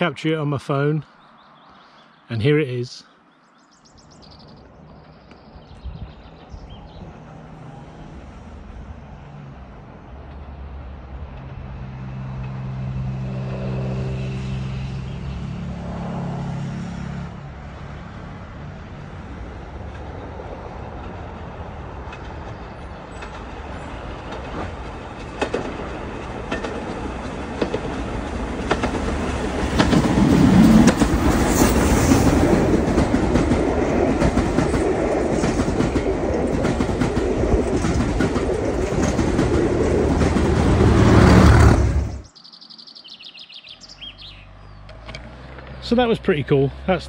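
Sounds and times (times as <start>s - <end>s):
steam train rumbling past: 6.0s - 42.3s
train wheels clicking over rail joints: 20.8s - 42.2s.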